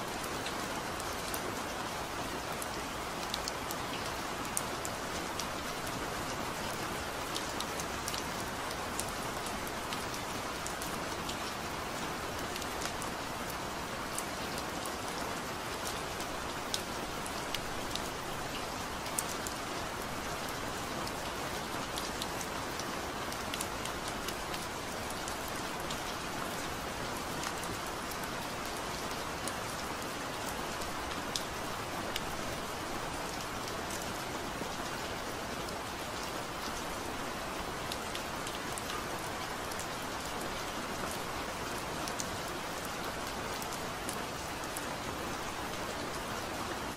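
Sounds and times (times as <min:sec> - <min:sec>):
steady rain patter: 0:00.0 - 0:46.9.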